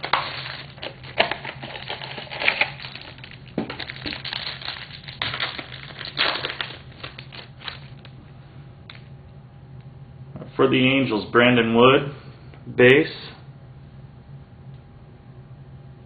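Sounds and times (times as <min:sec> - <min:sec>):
plastic wrapper crinkling and tearing: 0:00.0 - 0:08.2.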